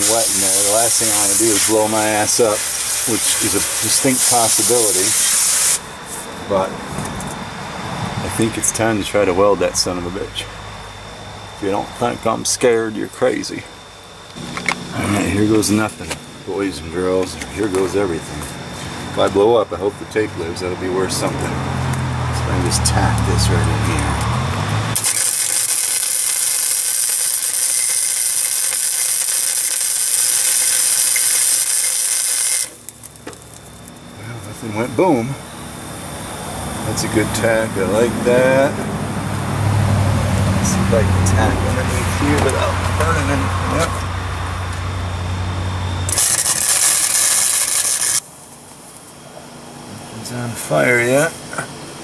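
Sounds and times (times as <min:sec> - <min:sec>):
welding arc hissing: 0:00.0 - 0:06.3, 0:22.8 - 0:39.4, 0:46.0 - 0:49.2.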